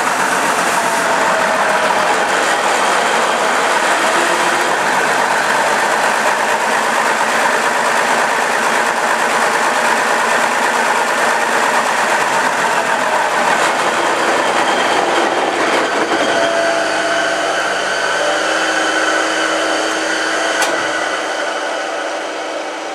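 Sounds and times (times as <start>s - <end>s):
engine cranking whir and clatter: 0.0s - 16.2s.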